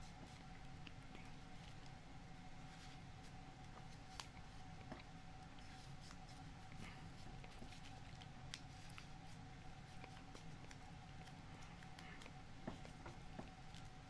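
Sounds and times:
faint steady hum: 0:00.0 - 0:14.0
paper rustling and ticking: 0:03.6 - 0:14.0.

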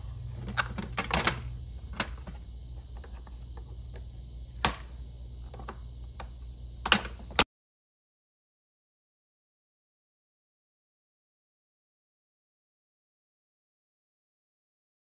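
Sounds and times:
plastic clips snapping off: 0:04.0 - 0:05.8.

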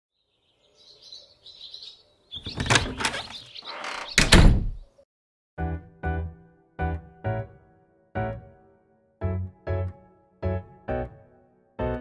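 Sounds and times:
bird chirps: 0:00.1 - 0:04.2
piano-like chords: 0:05.6 - 0:12.0.

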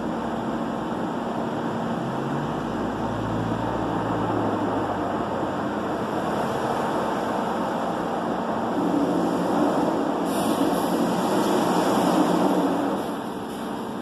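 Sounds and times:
car wash brushes and water spray: 0:05.9 - 0:14.0.

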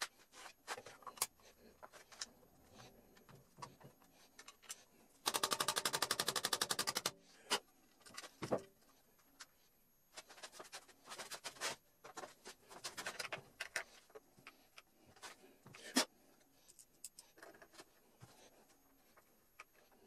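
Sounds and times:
screwdriver rapid clicks: 0:05.3 - 0:07.1.

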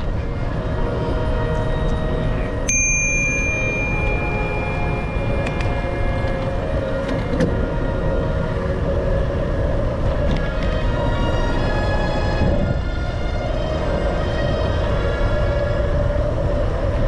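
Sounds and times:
wind rushing over camera: 0:04.0 - 0:17.0.

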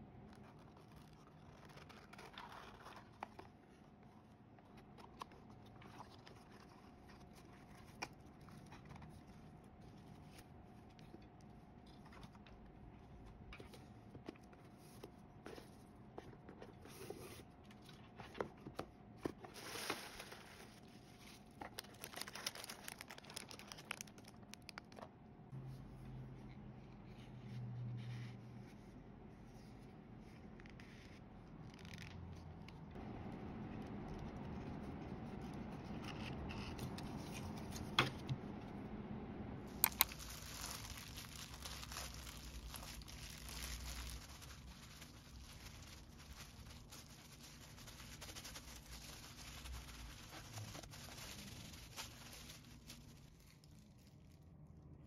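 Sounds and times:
faint steady hum: 0:00.0 - 0:55.0
low hum: 0:31.4 - 0:46.5.

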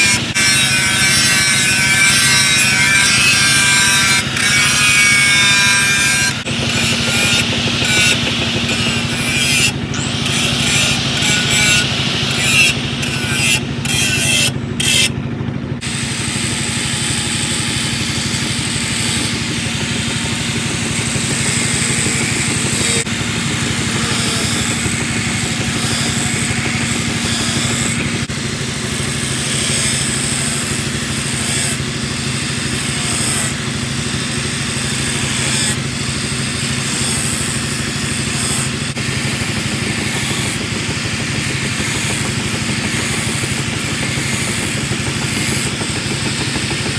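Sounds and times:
angle grinder grinding steel: 0:00.0 - 0:46.9.

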